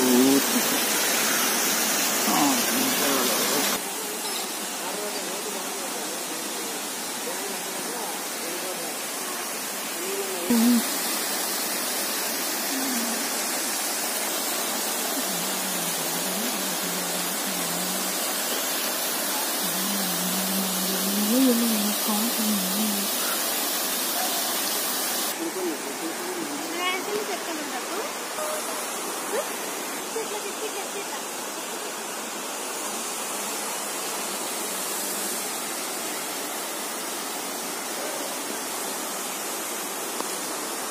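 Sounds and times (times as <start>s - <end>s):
faint voices: 0.0s - 11.1s, 19.2s - 24.7s
water rushing over rocks: 0.0s - 40.9s.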